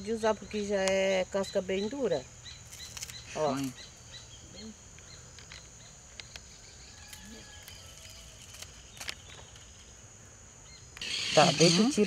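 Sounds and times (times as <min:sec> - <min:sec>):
high-pitched insect drone: 0:10.7 - 0:12.0.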